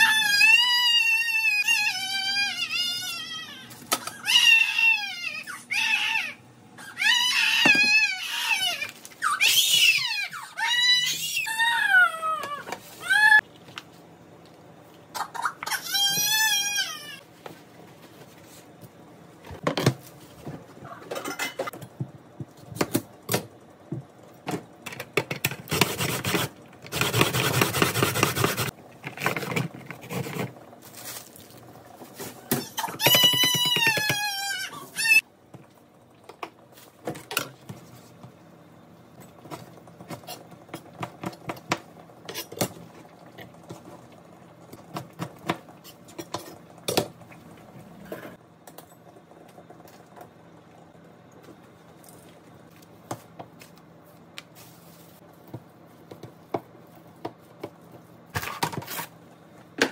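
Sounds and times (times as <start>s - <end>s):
plastic rustle: 29.2s - 32.4s.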